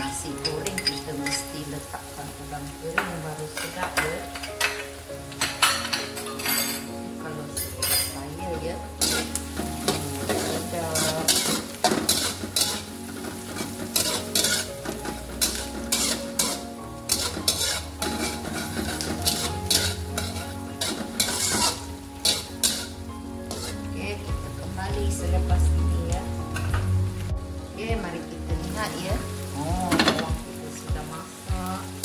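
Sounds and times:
food sizzling in hot oil: 0.0s - 32.0s
spatula scraping a wok: 8.9s - 24.2s.

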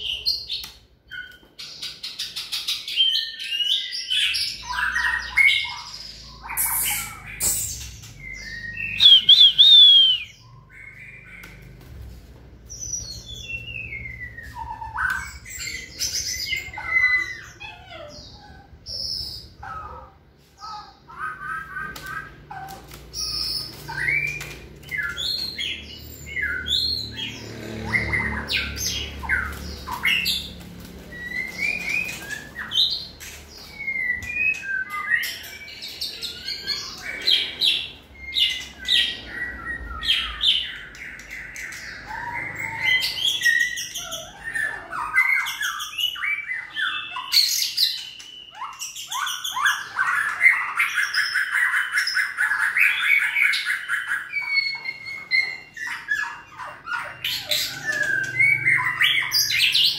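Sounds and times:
bird singing whistled phrases: 6.5s - 11.2s.

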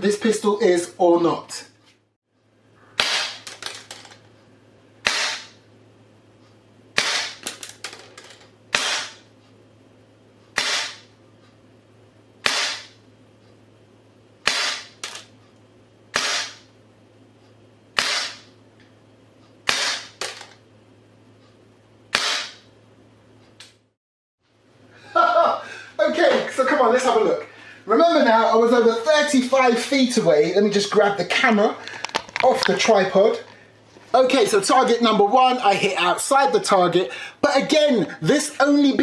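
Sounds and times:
airsoft pistol shots: 3.0s - 3.5s, 5.0s - 5.5s, 7.0s - 7.5s, 8.7s - 9.2s, 10.6s - 11.0s, 12.4s - 13.0s, 14.5s - 15.0s, 16.2s - 16.6s, 18.0s - 18.5s, 19.7s - 20.4s, 22.1s - 22.6s.

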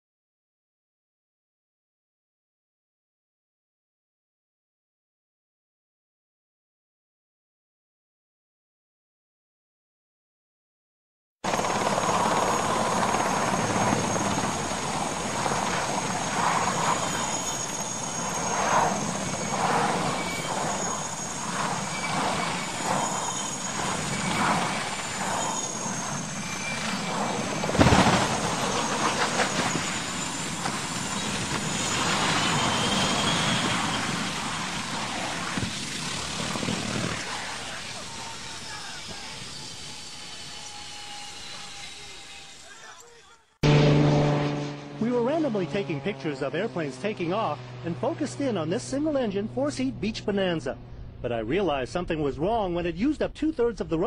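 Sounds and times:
helicopter turbine and rotor: 11.4s - 52.5s.

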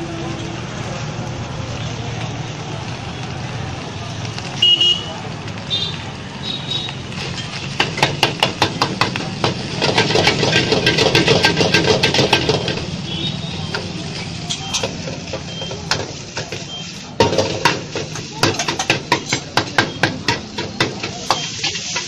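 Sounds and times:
voices: 0.0s - 7.7s, 8.5s - 22.0s
cooking utensils clacking: 7.2s - 22.0s.

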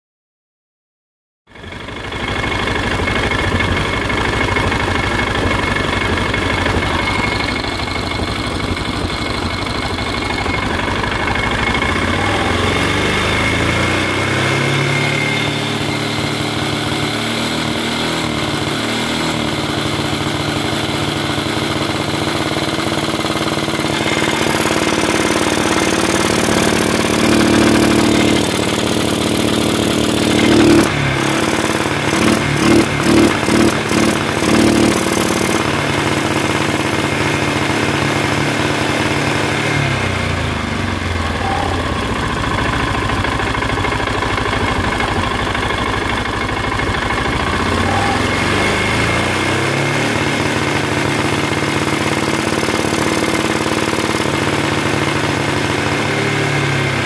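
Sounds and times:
atv engine revving: 1.6s - 57.0s.

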